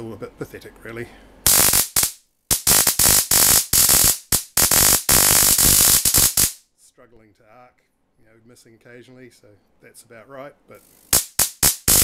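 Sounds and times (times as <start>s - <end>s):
high-voltage sparks crackling: 1.5s - 6.6s, 10.9s - 12.0s.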